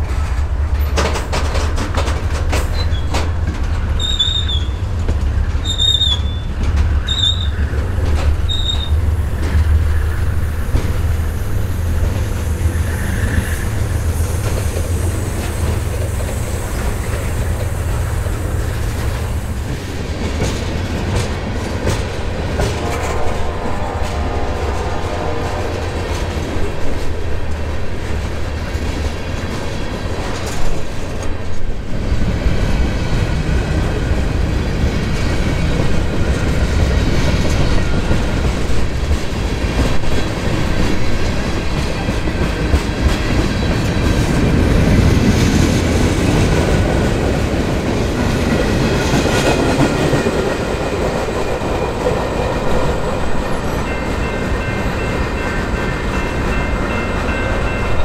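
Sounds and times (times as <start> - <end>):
diesel locomotive engine rumble: 0.0 - 58.0
train wheels clicking over rail joints: 0.0 - 58.0
train wheel squeal: 2.6 - 3.3, 3.9 - 4.9, 5.5 - 10.8, 11.4 - 19.6.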